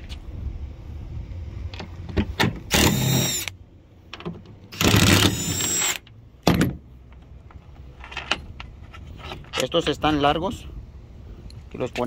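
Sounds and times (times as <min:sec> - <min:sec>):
impact driver motor whine: 0:02.7 - 0:03.5, 0:04.8 - 0:06.0.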